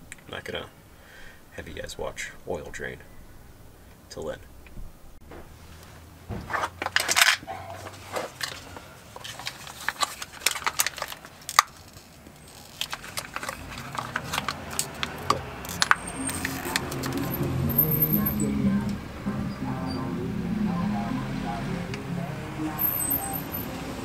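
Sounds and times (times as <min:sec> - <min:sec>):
small objects clicking and rattling: 0:06.8 - 0:07.4, 0:08.3 - 0:18.1.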